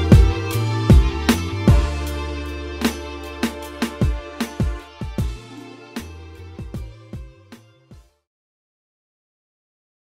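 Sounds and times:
sustained chords: 0:00.0 - 0:07.2
deep drum hits: 0:00.1 - 0:02.0, 0:03.4 - 0:05.4.

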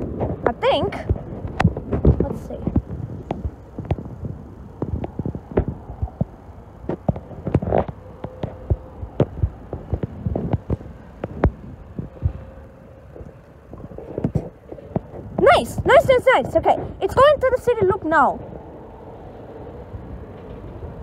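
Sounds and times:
faint steady whine: 0:00.0 - 0:21.0
train wheels clattering over rail joints: 0:18.4 - 0:21.0.

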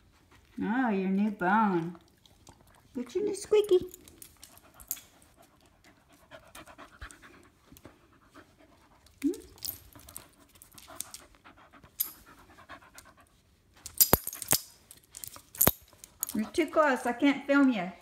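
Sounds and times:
dog panting: 0:04.3 - 0:09.2, 0:09.8 - 0:13.5.

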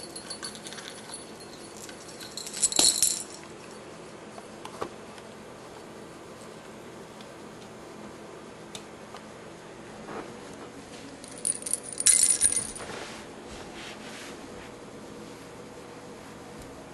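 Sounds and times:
cat toy jingling and rattling: 0:00.0 - 0:03.4, 0:11.2 - 0:12.9.

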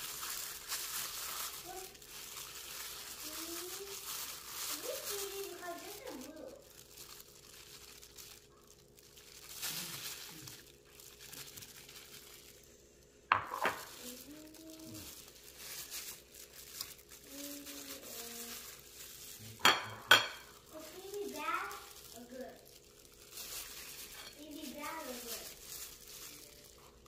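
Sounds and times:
plastic gloves crinkling: 0:00.0 - 0:27.0
dishes clinking: 0:19.6 - 0:20.5.

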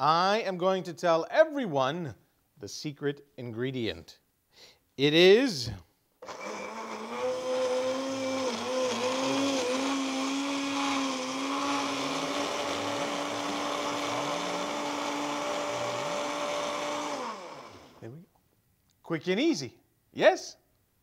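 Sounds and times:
electric blender running: 0:06.2 - 0:18.0.

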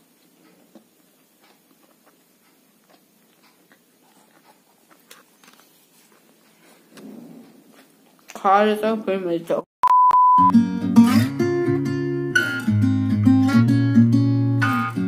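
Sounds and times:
faint chewing: 0:00.0 - 0:08.4.

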